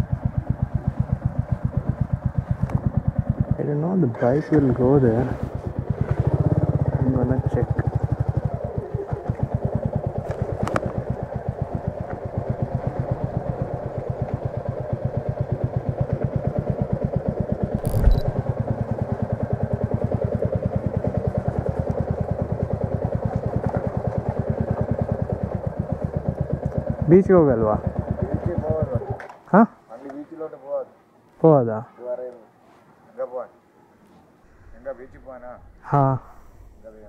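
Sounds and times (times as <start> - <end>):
motorcycle engine idling: 0.0 - 29.2.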